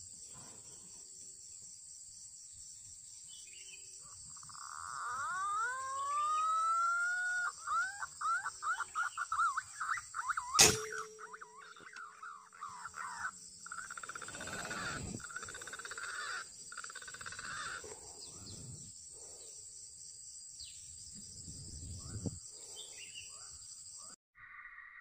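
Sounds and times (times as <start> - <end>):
bird calls: 3.4 - 18.8
sharp loud click: 10.6 - 11.3.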